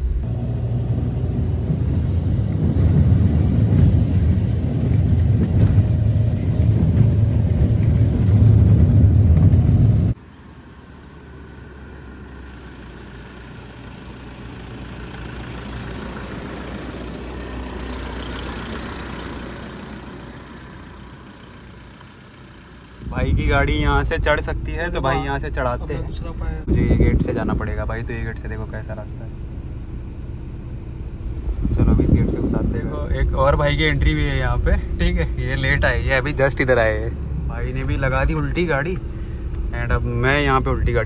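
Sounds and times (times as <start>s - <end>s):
cars driving past: 0.0s - 26.7s, 28.4s - 41.0s
car interior engine rumble: 0.0s - 41.0s.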